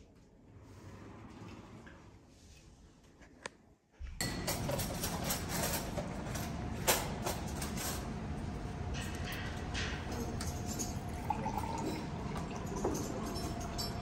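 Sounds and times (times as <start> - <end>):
breakfast room background noise: 0.0 - 14.0
glasses and dishes clinking: 9.0 - 14.0.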